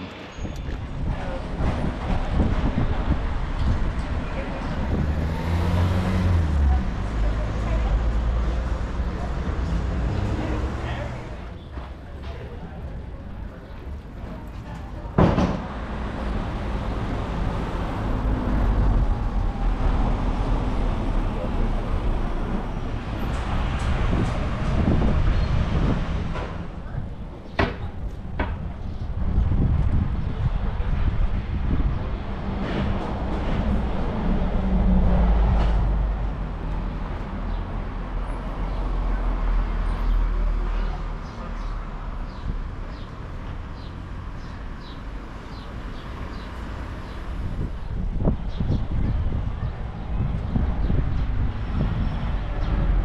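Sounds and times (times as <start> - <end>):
road traffic rumble: 0.0 - 53.0
vehicle passing close by: 1.8 - 11.5
sudden loud knock: 15.2 - 15.8.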